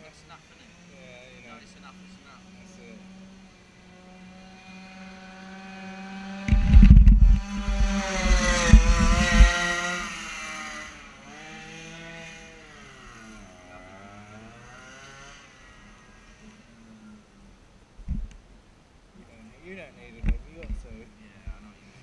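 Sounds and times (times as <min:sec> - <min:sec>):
two-stroke engine revving: 0:00.5 - 0:16.4.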